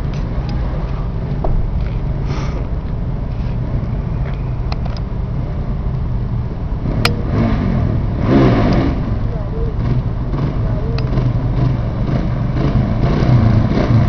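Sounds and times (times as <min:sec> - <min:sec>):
quad bike engine running: 0:06.8 - 0:14.0.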